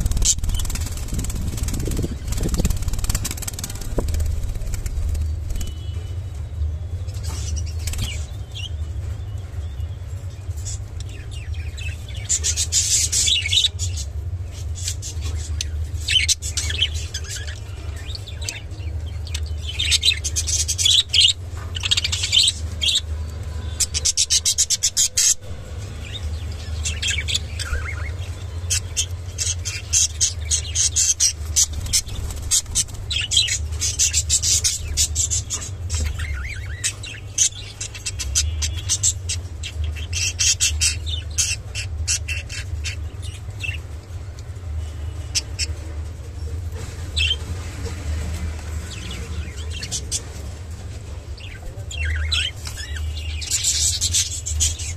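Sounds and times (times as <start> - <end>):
steady low hum: 0.0 - 54.9
budgerigars chirping: 9.8 - 43.9, 44.8 - 45.9, 48.8 - 50.6, 51.4 - 54.9.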